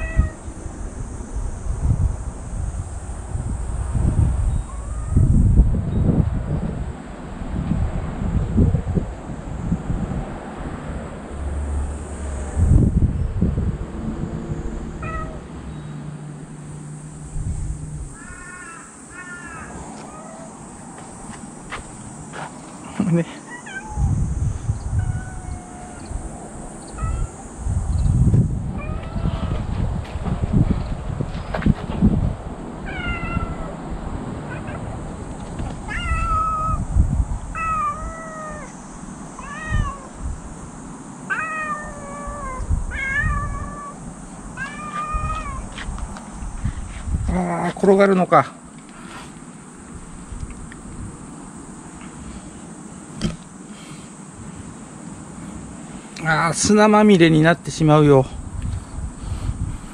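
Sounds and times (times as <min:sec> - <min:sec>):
cat meowing: 0:00.0 - 0:00.4, 0:04.5 - 0:05.4, 0:15.0 - 0:15.4, 0:18.2 - 0:20.5, 0:23.4 - 0:27.5, 0:28.7 - 0:29.7, 0:32.8 - 0:33.7, 0:34.5 - 0:34.8, 0:35.8 - 0:36.9, 0:37.5 - 0:38.8, 0:39.4 - 0:40.2, 0:41.3 - 0:44.0, 0:44.6 - 0:45.8
crow cawing: 0:18.2 - 0:20.5.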